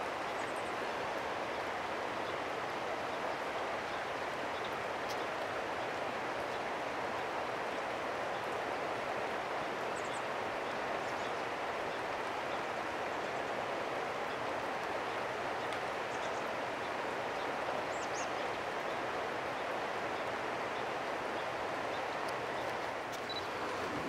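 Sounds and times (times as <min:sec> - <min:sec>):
steady rushing noise: 0:22.4 - 0:24.0.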